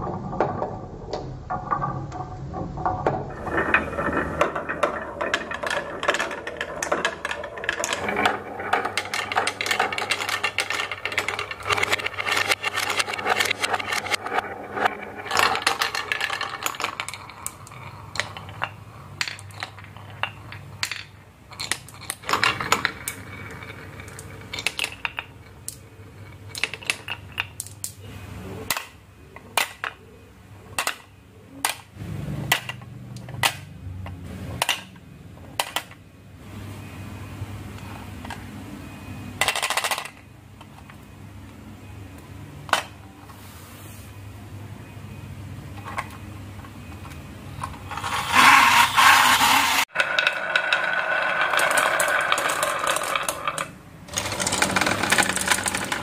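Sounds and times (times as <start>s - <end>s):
marbles rattling down wooden run: 0.0s - 27.7s, 47.9s - 56.0s.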